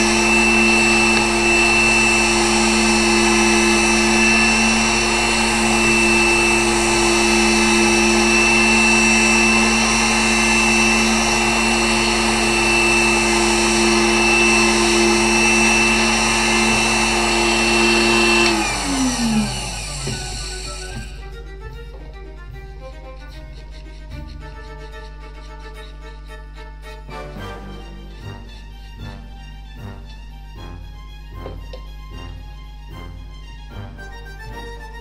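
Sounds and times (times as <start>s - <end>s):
engraving machine motor whining: 0.0s - 21.4s.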